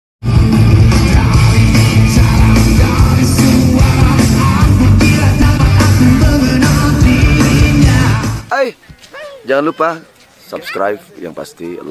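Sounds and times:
loud rock music: 0.2 - 8.5.

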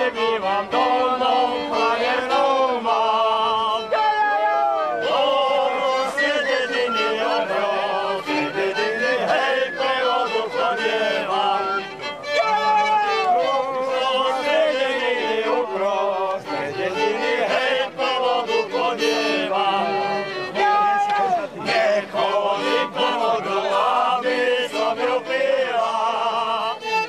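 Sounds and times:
fiddle accompaniment: 0.0 - 27.0
person singing folk song: 0.0 - 27.0.

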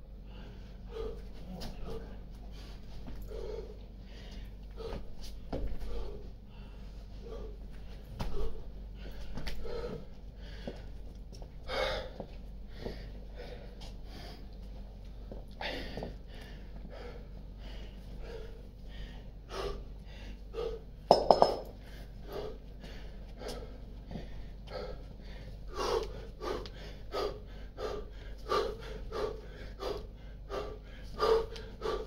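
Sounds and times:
man breathing hard: 0.0 - 32.0
kettlebells clanking together: 21.1 - 21.8.

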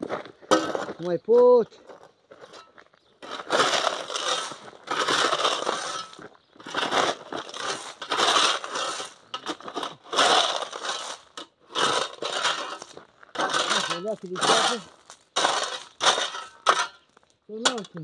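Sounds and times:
shovel scraping gravel: 0.0 - 1.1, 2.4 - 18.0.

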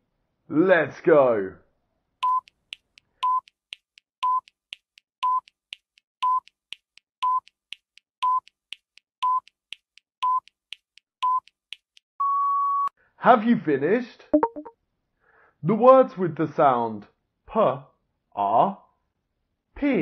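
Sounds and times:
timer beeps: 2.2 - 2.5, 3.2 - 3.5, 4.2 - 4.6, 5.2 - 5.5, 6.2 - 6.5, 7.2 - 7.5, 8.2 - 8.5, 9.2 - 9.6, 10.2 - 10.5, 11.2 - 11.5, 14.4 - 14.7.

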